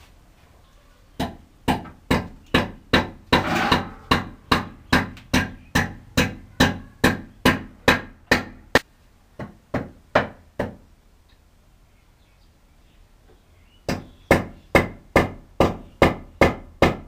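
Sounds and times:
hammer blows on wood: 1.2s - 8.6s.

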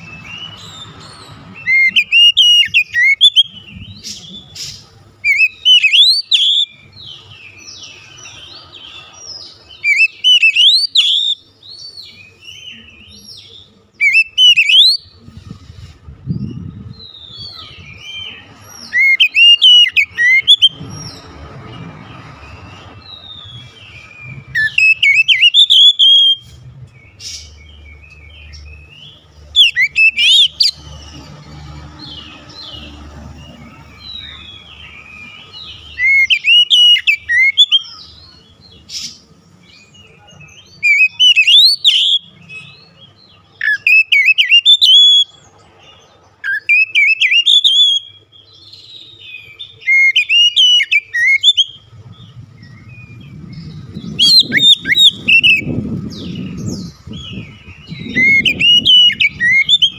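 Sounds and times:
bird singing whistled phrases: 1.6s - 3.8s, 5.2s - 6.9s, 9.8s - 11.4s, 14.0s - 15.1s, 17.0s - 20.8s, 23.2s - 26.5s, 29.6s - 30.8s, 35.8s - 38.1s, 40.6s - 42.8s, 43.6s - 45.4s, 46.4s - 51.9s, 52.8s - 59.9s.

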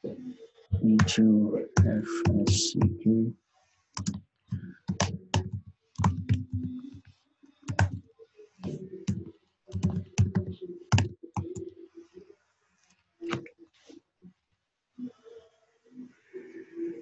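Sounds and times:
typing on a computer keyboard: 4.0s - 4.2s, 4.8s - 7.0s, 7.7s - 8.0s, 9.1s - 11.7s.

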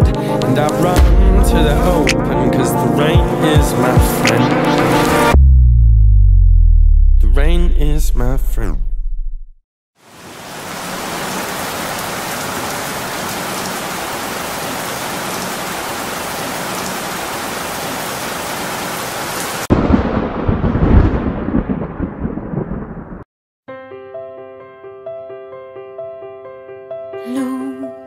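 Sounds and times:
rolling thunder: 1.0s - 3.8s, 19.7s - 23.2s
heavy rain: 10.0s - 23.2s.

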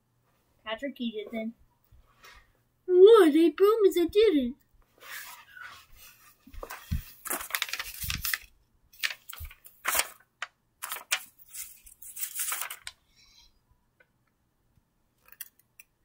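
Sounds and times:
plush toy rustling and crinkling: 5.1s - 13.0s.

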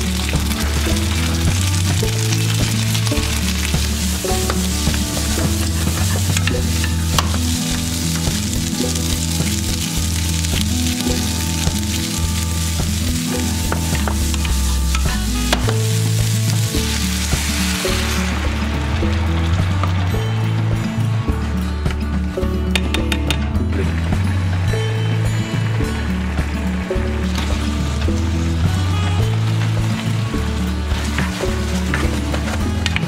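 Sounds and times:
vegetables sizzling in a frying pan: 0.0s - 20.8s, 27.1s - 33.0s
wooden spoon knocking on pan: 12.9s - 15.9s.

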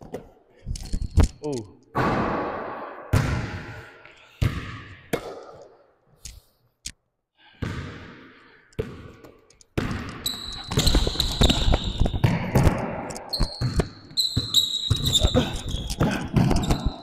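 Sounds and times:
basketball bouncing on a court: 2.0s - 3.7s, 4.4s - 5.6s, 7.6s - 17.0s.

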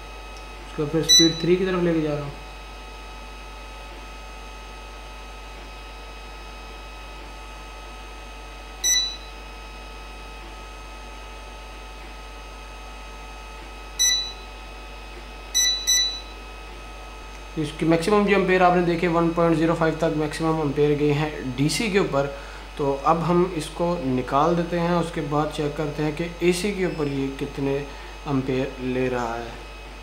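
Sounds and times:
steady hum: 0.0s - 30.0s
short high buzzer beeps: 1.0s - 1.6s, 8.8s - 9.4s, 14.0s - 14.5s, 15.5s - 16.5s, 26.8s - 27.4s.

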